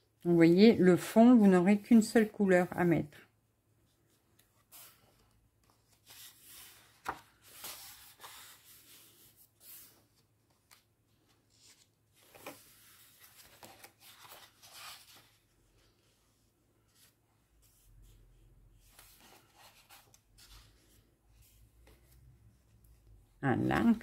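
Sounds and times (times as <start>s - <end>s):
paper pages rustling: 4.0s - 17.9s, 18.7s - 23.1s.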